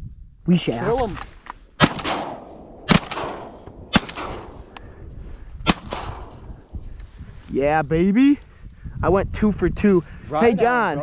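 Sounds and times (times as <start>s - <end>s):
shotgun shots: 1.8s - 4.7s, 5.6s - 6.5s.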